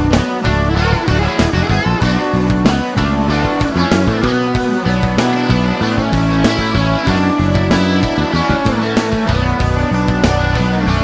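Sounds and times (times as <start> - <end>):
instrumental music with guitar: 0.0 - 11.0.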